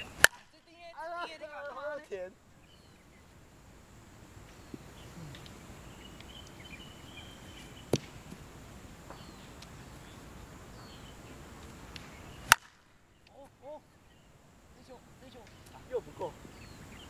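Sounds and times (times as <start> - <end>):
bat striking softball: 0.0 - 0.6, 7.9 - 8.4, 11.9 - 13.0
faint bird chirps: 0.0 - 8.3, 9.0 - 17.0
outdoor background noise: 0.0 - 17.0.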